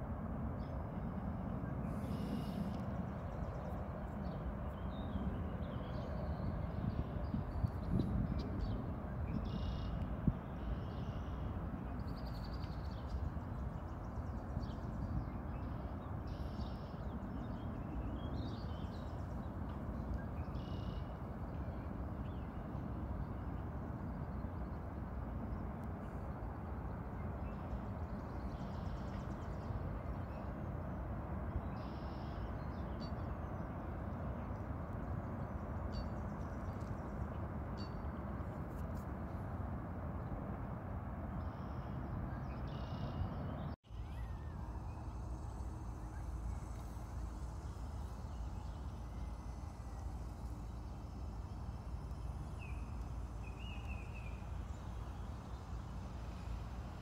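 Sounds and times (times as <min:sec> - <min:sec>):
low outdoor background noise: 0:00.0 - 0:57.0
faint bird chirps: 0:07.2 - 0:13.2, 0:20.1 - 0:21.8, 0:31.7 - 0:33.3, 0:41.4 - 0:45.3.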